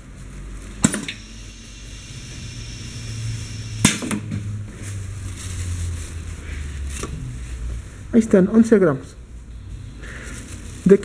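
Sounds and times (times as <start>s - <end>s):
machine humming: 0.8s - 4.5s.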